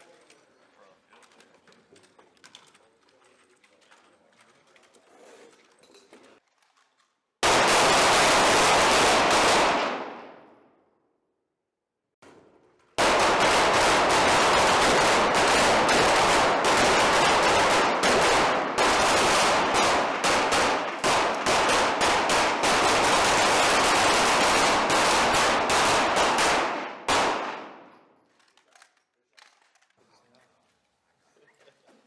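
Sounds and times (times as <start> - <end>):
pistols firing rapid shots: 7.4 - 10.4, 13.0 - 28.0
gunshot echo off walls: 7.4 - 10.8, 13.0 - 28.2.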